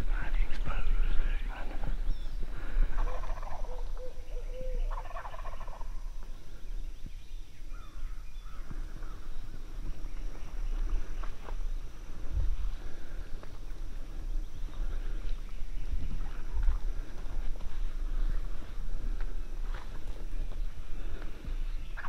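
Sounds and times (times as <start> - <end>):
wild turkey gobbling: 2.5 - 6.6, 16.2 - 17.3.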